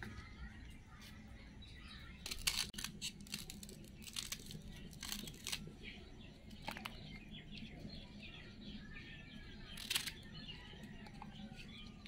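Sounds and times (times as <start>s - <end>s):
birds chirping: 0.0s - 12.0s
knife cutting banana stems: 2.2s - 5.7s, 9.7s - 10.2s.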